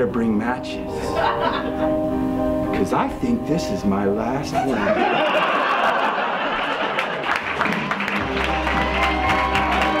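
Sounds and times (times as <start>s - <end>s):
audience applause: 5.4s - 10.0s
music with held bass note: 8.0s - 10.0s.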